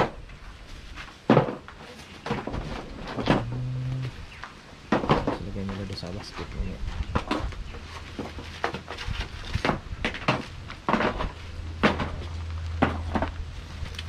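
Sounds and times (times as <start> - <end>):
steady low hum: 2.8 - 14.0.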